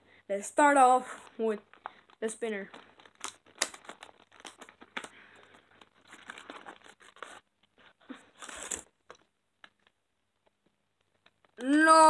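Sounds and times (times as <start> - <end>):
paper packaging rustling: 1.2 - 11.6
paper tearing: 6.0 - 7.5, 8.1 - 8.9.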